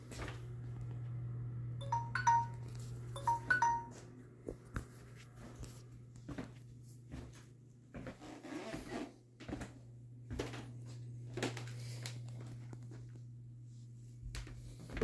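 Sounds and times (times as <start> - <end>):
soft footsteps: 4.5 - 11.7.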